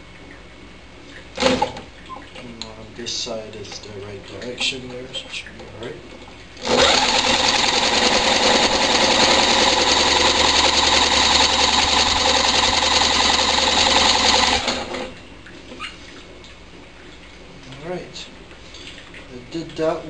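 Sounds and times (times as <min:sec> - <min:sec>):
electric drill cranking engine: 0:06.6 - 0:15.1.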